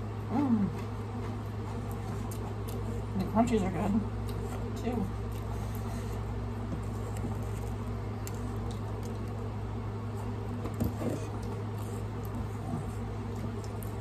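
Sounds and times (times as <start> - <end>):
steady low hum: 0.0 - 14.0
person chewing: 0.7 - 3.2, 4.2 - 9.6, 10.2 - 14.0.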